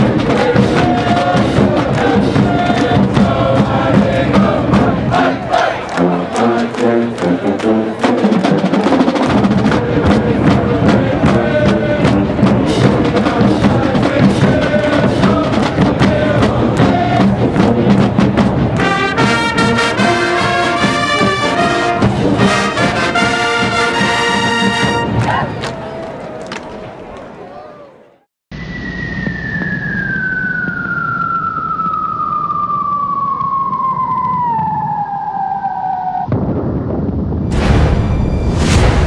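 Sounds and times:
drums: 0.0s - 5.6s, 7.6s - 25.6s, 36.3s - 39.0s
marching band brass: 0.0s - 26.2s.

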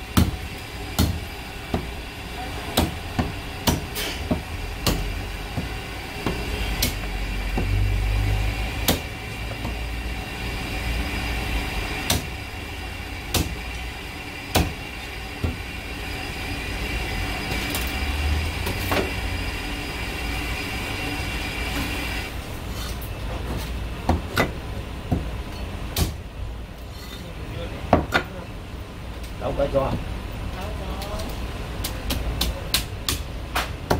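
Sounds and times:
steady background hum: 0.0s - 33.9s
cleaver chopping on wooden block: 1.0s - 1.9s, 2.8s - 7.8s, 8.8s - 9.8s, 12.0s - 12.3s, 13.3s - 13.6s, 14.5s - 14.8s.

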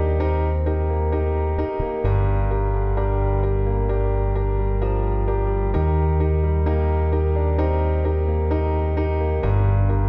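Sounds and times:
gentle instrumental music: 0.0s - 10.0s.

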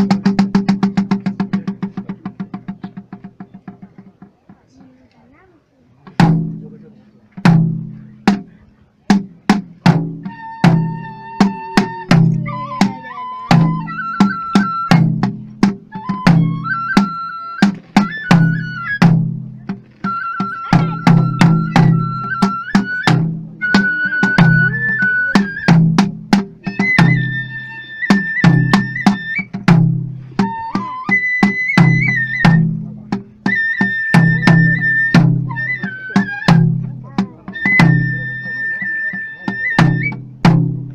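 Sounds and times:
barrel drum strokes: 0.0s - 5.0s, 6.0s - 40.9s
high flute long notes: 10.2s - 15.0s, 20.0s - 25.8s, 26.6s - 29.5s, 30.4s - 32.7s.

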